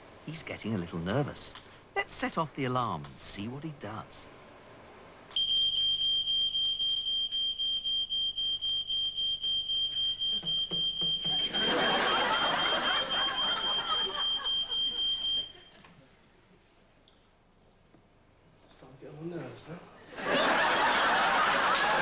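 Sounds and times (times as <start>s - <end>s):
electronic alarm pulsing: 5.4s - 15.7s.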